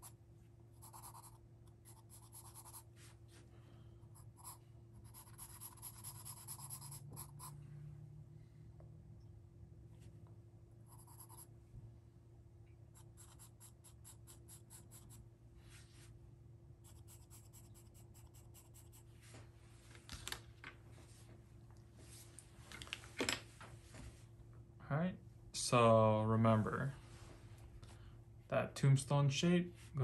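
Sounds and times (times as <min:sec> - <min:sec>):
pencil scratching on paper: 0:00.8 - 0:02.9, 0:04.2 - 0:07.6, 0:10.9 - 0:11.5, 0:13.0 - 0:15.2, 0:16.8 - 0:19.1.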